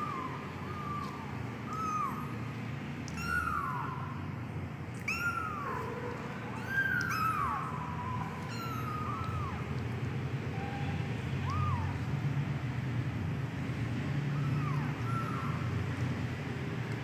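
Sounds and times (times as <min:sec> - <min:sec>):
kitten mewing: 0:00.0 - 0:02.4, 0:03.0 - 0:04.2, 0:05.0 - 0:12.1, 0:14.3 - 0:15.8.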